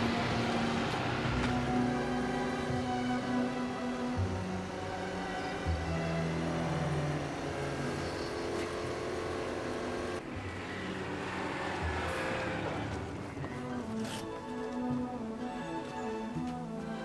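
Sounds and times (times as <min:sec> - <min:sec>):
car engine running: 0:00.0 - 0:10.2.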